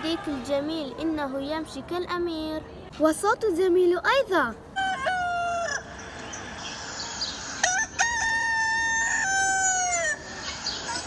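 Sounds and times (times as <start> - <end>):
rooster crowing: 7.6 - 10.2.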